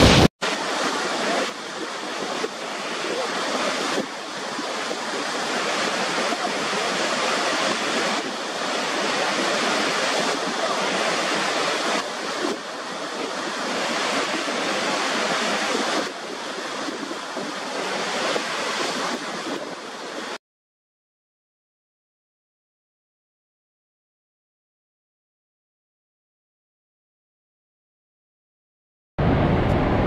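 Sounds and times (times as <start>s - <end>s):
waterfall rushing: 0.0s - 20.4s.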